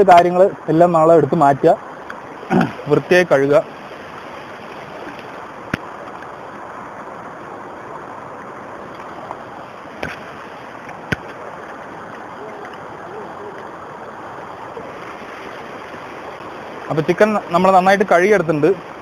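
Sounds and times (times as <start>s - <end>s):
stream running over rocks: 0.0s - 19.0s.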